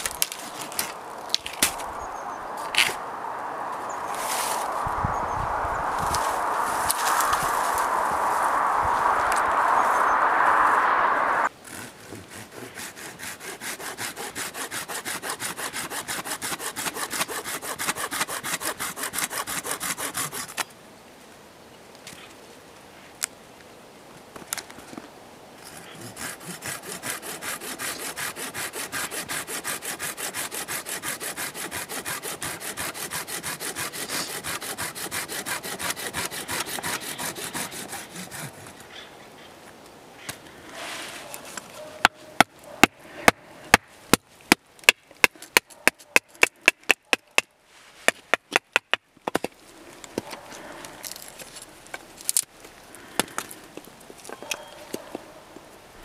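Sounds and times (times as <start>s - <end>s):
knife cutting and scraping wood: 0.0s - 3.0s, 11.5s - 20.7s, 25.6s - 39.1s, 40.2s - 43.4s, 49.3s - 52.6s
saw cutting through branch: 0.0s - 4.9s, 11.5s - 20.6s, 25.6s - 38.9s.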